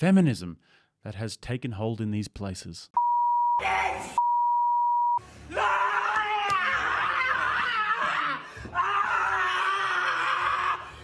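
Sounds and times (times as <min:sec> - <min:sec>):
steady beep tone: 0:03.0 - 0:03.6, 0:04.2 - 0:05.2
woman screaming and wailing: 0:05.5 - 0:11.0.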